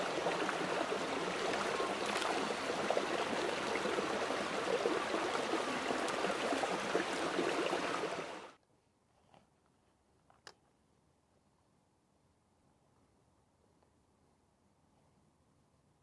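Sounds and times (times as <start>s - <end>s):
running water: 0.0s - 8.6s.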